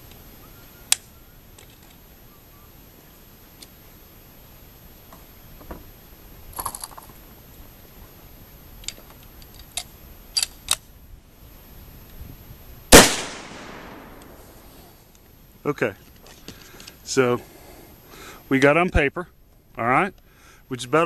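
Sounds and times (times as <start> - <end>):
rifle shot: 12.9 - 14.6.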